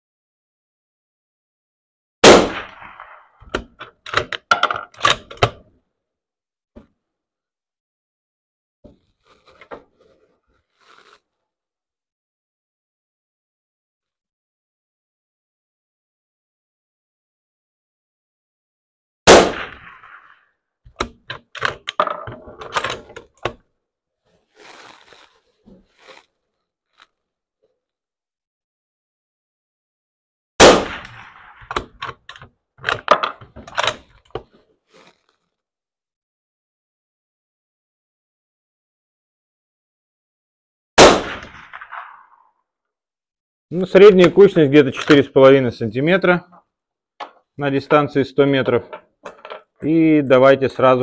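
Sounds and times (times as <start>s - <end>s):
rifle shot with echo: 2.2s - 3.4s, 19.3s - 20.4s, 30.6s - 31.8s, 41.0s - 42.4s
rifle bolt metallic clacks: 3.5s - 5.7s, 20.9s - 23.6s, 31.6s - 34.0s.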